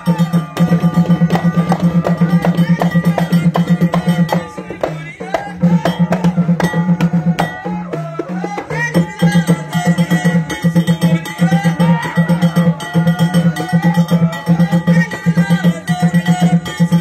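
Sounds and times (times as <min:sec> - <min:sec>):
rapid drumbeat: 0:00.0 - 0:17.0.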